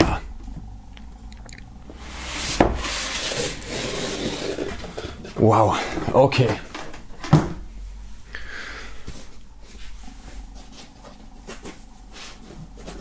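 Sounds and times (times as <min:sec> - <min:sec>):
foam packing rubbing and handling: 0:02.0 - 0:05.4.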